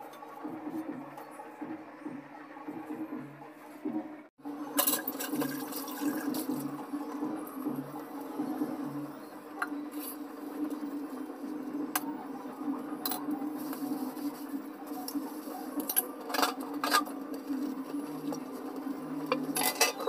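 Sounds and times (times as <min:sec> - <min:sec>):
dishes being scrubbed: 0:19.3 - 0:20.0
metal dishes clinking: 0:19.3 - 0:20.0.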